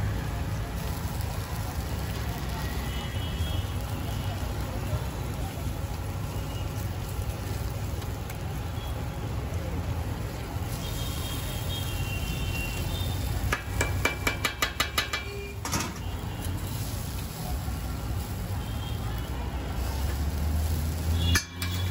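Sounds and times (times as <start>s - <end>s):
low street rumble: 0.0s - 21.9s
steel utensils on iron griddle: 12.8s - 18.4s, 19.7s - 21.9s.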